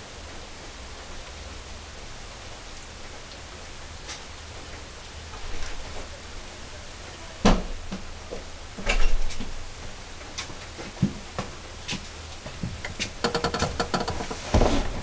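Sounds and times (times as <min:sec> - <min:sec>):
knocks and clunks: 0:12.5 - 0:15.0
rapid clicks: 0:12.8 - 0:14.4.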